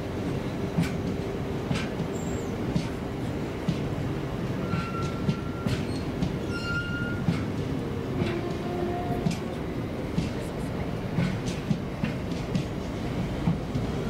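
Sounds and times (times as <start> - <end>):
train wheels clicking over rail joints: 0.4 - 14.0
wheel squeals on rail: 4.6 - 7.6.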